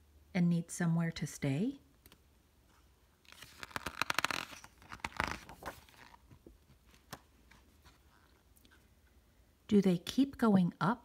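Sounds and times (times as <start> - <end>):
paper page rustling: 2.7 - 8.4.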